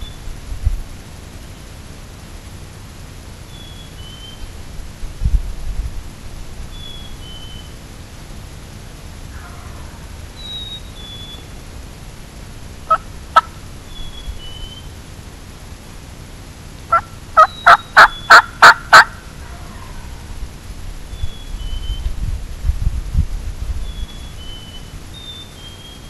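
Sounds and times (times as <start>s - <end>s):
turkey clucks: 9.3s - 10.0s, 12.9s - 13.6s, 16.9s - 20.1s
turkey yelps: 9.3s - 10.0s, 12.9s - 13.6s, 16.9s - 20.2s.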